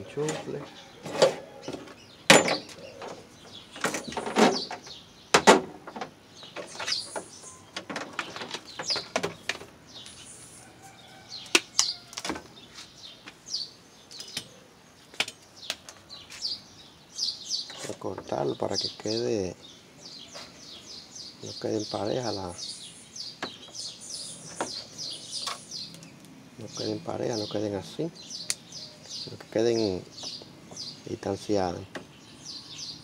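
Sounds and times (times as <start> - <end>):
small birds chirping: 0.0 - 33.0
clicks and knocks of handling objects: 3.8 - 9.7.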